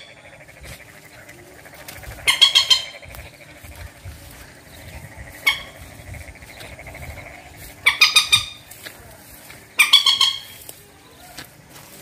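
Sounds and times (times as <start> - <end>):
moorhen calling harsh notes: 2.0 - 8.8, 9.7 - 10.8.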